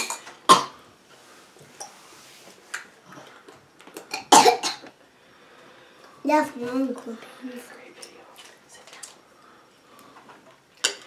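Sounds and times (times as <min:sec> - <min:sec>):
young child coughing: 0:00.0 - 0:00.8, 0:04.1 - 0:04.9.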